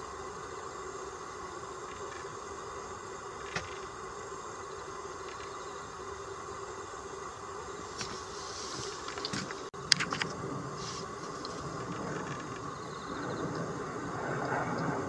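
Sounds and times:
steady background drone: 0.0s - 15.0s.

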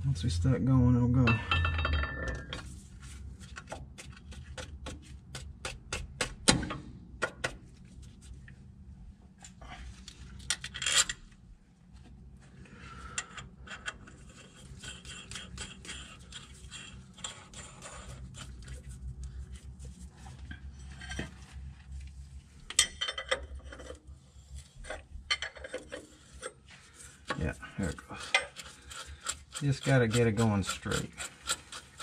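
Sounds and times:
metal clinks and scrapes: 1.2s - 2.9s, 13.1s - 19.5s, 20.2s - 21.7s, 22.6s - 32.0s.

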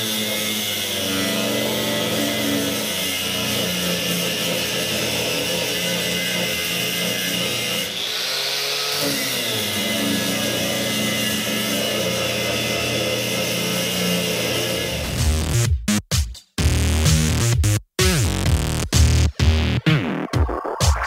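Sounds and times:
angle grinder on sheet metal: 0.0s - 15.5s
background music: 14.2s - 21.0s.

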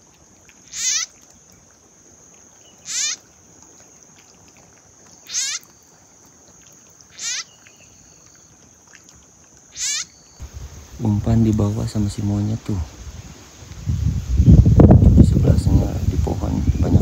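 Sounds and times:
frog distress cries: 0.6s - 1.2s, 2.8s - 3.2s, 5.2s - 5.8s, 7.1s - 7.6s, 9.7s - 10.3s
high whine of insects: 0.6s - 4.0s, 5.0s - 17.0s.

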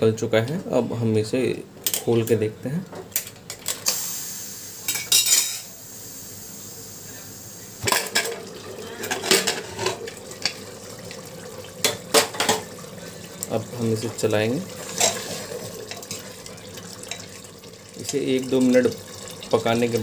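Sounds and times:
pressure cooker hiss: 3.8s - 8.3s.

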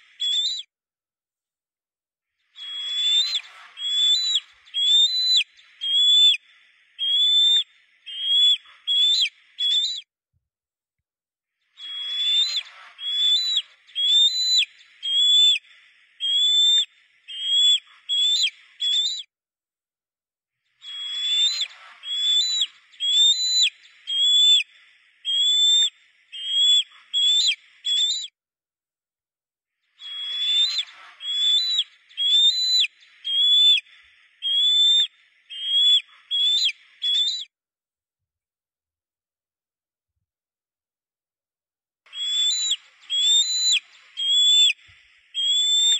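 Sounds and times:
bird whistling: 0.0s - 0.7s, 2.6s - 6.4s, 7.0s - 10.1s, 11.8s - 15.6s, 16.2s - 19.3s, 20.8s - 28.3s, 30.0s - 37.5s, 42.1s - 45.9s.

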